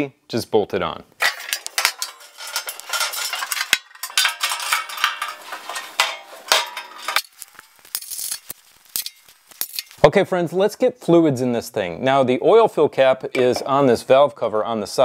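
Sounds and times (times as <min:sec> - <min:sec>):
sheet metal panels clanking: 0:01.2 - 0:07.4.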